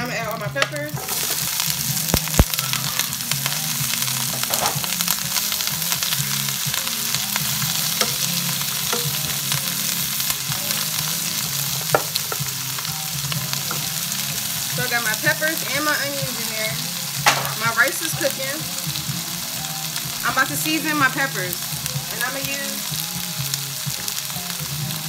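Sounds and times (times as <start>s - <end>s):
vegetables sizzling in oil: 0.0s - 25.0s
sharp thumps: 2.1s - 2.6s
utensil knocking pan: 7.8s - 9.6s, 11.8s - 12.5s, 17.2s - 18.4s.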